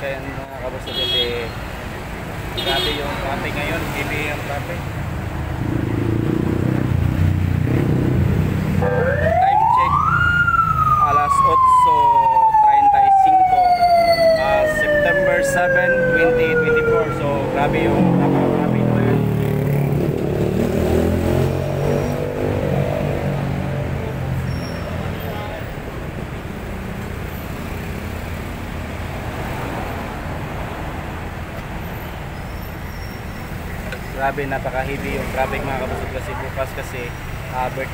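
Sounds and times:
motorcycles and cars passing: 0:00.0 - 0:37.9
road traffic rumble: 0:00.0 - 0:37.9
siren wailing: 0:08.8 - 0:19.8.

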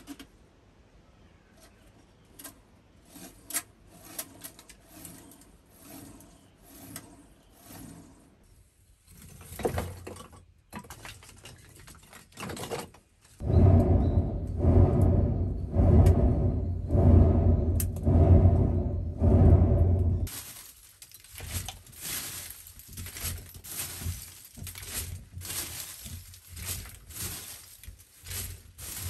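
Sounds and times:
blower rumbling hum: 0:13.4 - 0:20.3.

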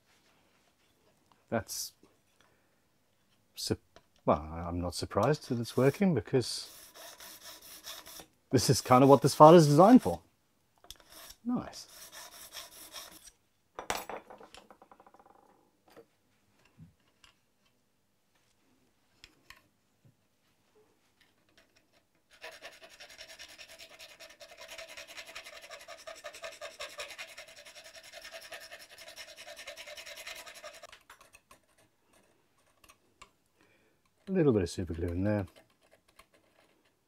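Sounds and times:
needle file rasping: 0:06.6 - 0:10.2, 0:10.9 - 0:13.3, 0:22.3 - 0:32.9, 0:35.1 - 0:37.0.

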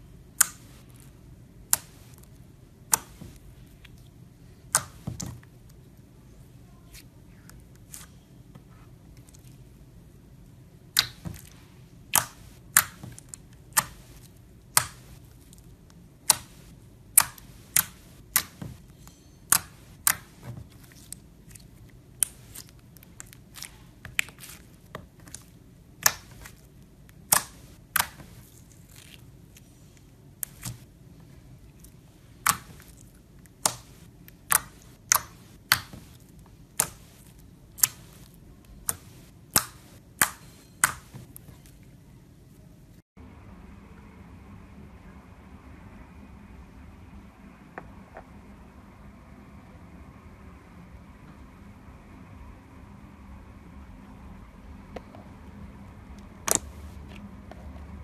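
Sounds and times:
slime clicking and popping: 0:00.3 - 0:00.8, 0:01.7 - 0:02.3, 0:04.7 - 0:05.4, 0:10.9 - 0:11.5, 0:12.1 - 0:15.6, 0:16.2 - 0:18.8, 0:22.2 - 0:29.2, 0:32.4 - 0:41.2, 0:56.4 - 0:56.9.

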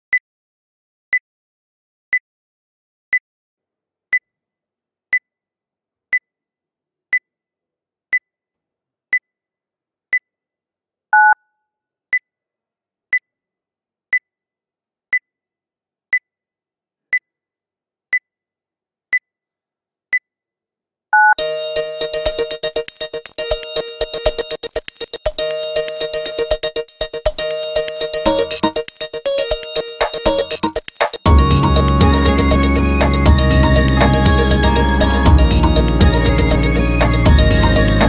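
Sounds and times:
synthesizer music: 0:21.4 - 0:38.0
two-note tone: 0:31.3 - 0:38.0.

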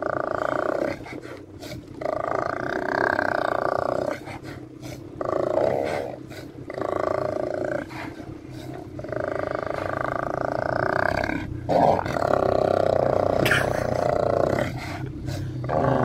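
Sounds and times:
sea lions roaring: 0:00.0 - 0:16.0.

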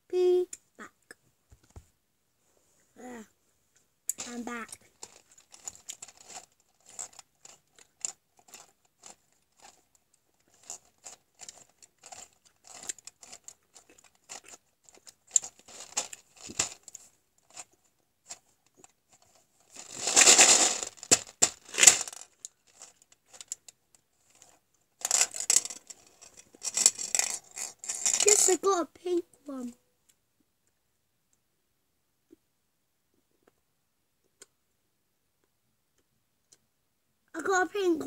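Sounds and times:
gumballs rattling in globe: 0:04.2 - 0:18.4, 0:19.7 - 0:23.7, 0:24.3 - 0:28.6.

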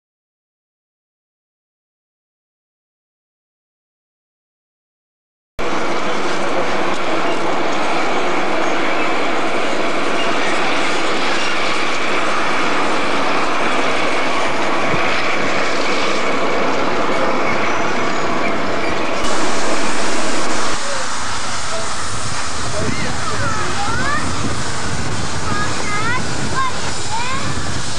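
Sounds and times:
diesel locomotive engine running: 0:05.6 - 0:27.9.

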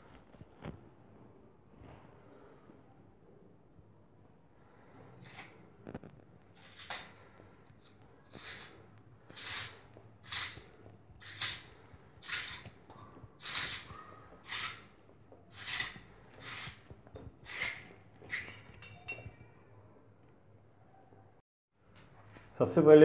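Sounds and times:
person breathing close: 0:06.7 - 0:11.0.

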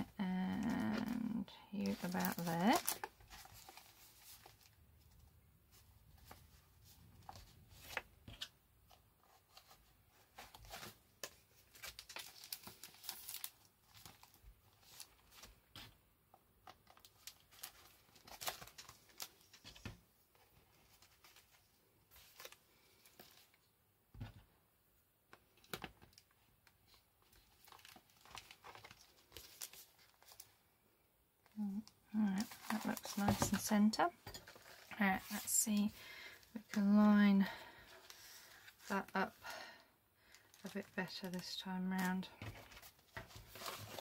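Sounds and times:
paper pages rustling: 0:01.8 - 0:15.9, 0:26.9 - 0:30.5, 0:32.2 - 0:33.7, 0:34.4 - 0:36.4, 0:40.4 - 0:44.0.

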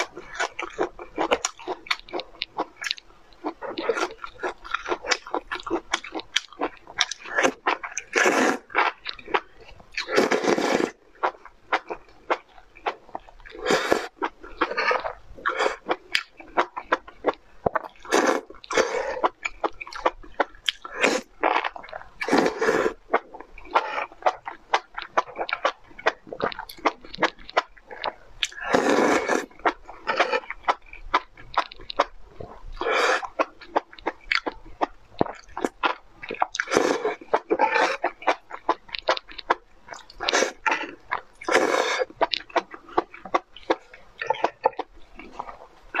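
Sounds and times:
chewing: 0:00.0 - 0:46.0
person slurping: 0:07.2 - 0:09.0, 0:10.0 - 0:11.0, 0:13.5 - 0:16.0, 0:18.0 - 0:24.4, 0:27.9 - 0:30.8, 0:32.8 - 0:33.5, 0:36.5 - 0:38.5, 0:39.9 - 0:46.0.

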